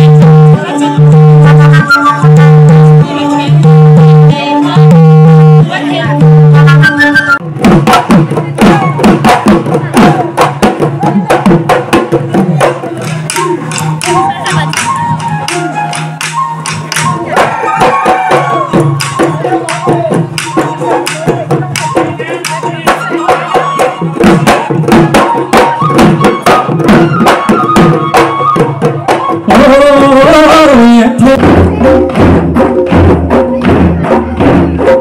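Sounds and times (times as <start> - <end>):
folk melody line: 0.0 - 7.6, 12.4 - 32.2
barrel drums beating: 0.0 - 35.0.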